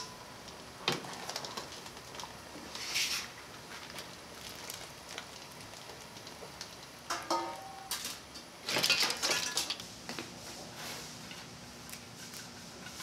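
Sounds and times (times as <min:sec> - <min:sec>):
boiling broth hissing: 0:00.2 - 0:07.1
wire skimmer striking metal pot: 0:07.1 - 0:08.2
metal kitchenware clattering: 0:07.1 - 0:09.8.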